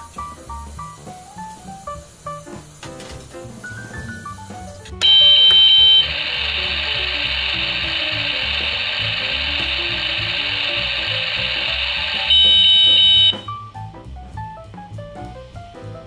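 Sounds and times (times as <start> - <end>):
electronic sizzle: 0.0 - 13.6
loud electronic beep: 5.0 - 13.5.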